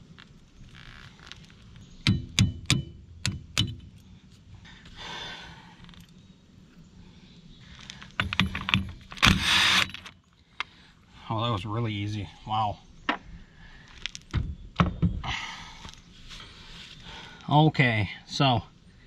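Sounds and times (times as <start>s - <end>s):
metal tools clinking on metal: 8.0s - 9.2s.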